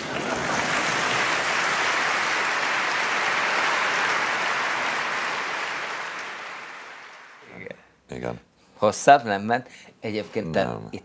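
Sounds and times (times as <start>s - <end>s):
large audience applauding: 0.0s - 7.4s.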